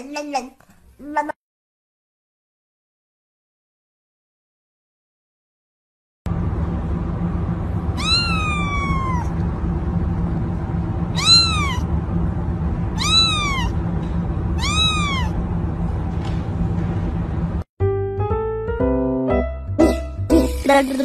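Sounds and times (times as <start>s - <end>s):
low background hum: 6.3s - 17.7s
kitten meowing: 8.0s - 9.4s, 11.1s - 11.9s, 13.0s - 13.8s, 14.6s - 15.4s.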